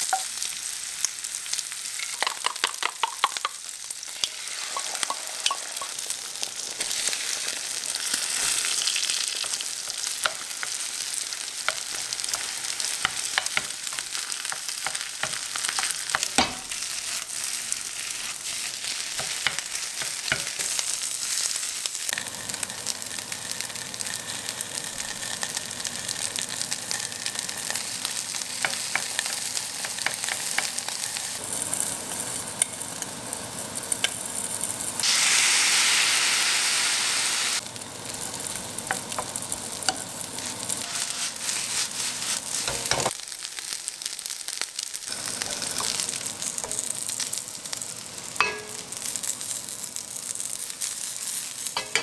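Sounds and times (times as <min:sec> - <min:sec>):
rice sizzling in a frying pan: 0:00.0 - 0:52.0
loud hiss of liquid in pan: 0:34.9 - 0:37.7, 0:40.3 - 0:43.2
wooden spatula scraping a pan: 0:39.9 - 0:43.1.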